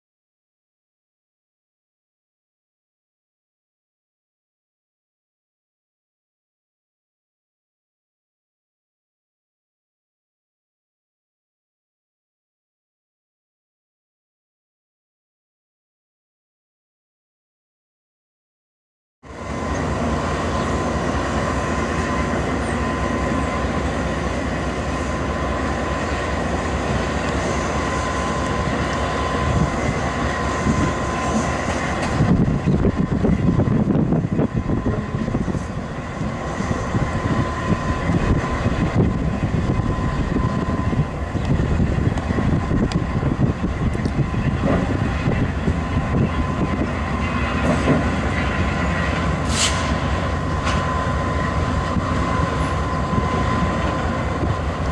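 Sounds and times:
diesel locomotive idling: 19.2s - 54.9s
high whine: 19.2s - 54.9s.

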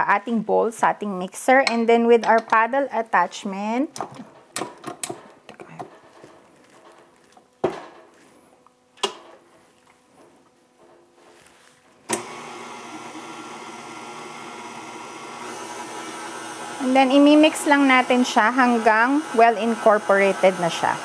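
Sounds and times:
stand mixer motor running: 12.2s - 21.0s.

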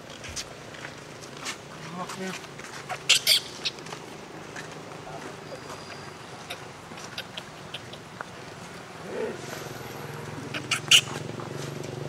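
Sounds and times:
monkey call: 2.9s - 3.8s, 5.4s - 8.4s, 10.4s - 11.4s.

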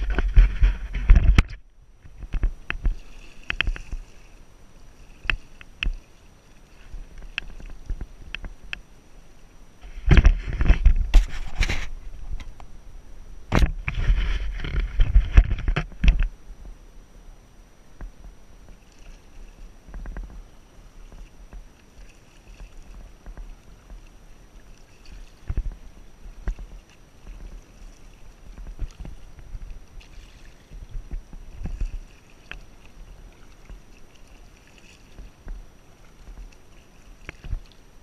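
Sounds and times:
paddle splashing in water: 0.0s - 8.8s, 18.6s - 38.0s
steady low rumble: 0.0s - 36.8s.

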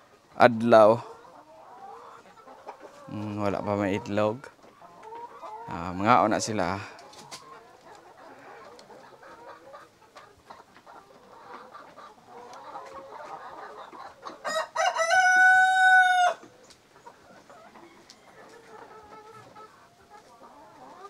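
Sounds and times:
hens clucking: 0.0s - 21.0s
rooster crowing: 14.4s - 16.4s.

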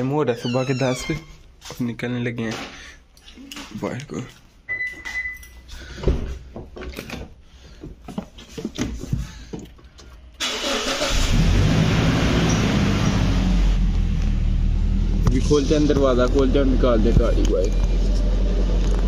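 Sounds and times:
car engine starting and idling: 10.4s - 19.0s.

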